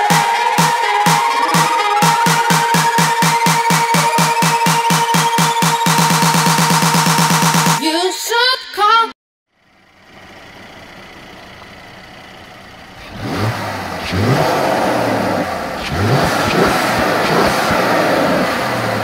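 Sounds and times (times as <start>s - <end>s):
car engine idling and revving: 9.5s - 19.0s.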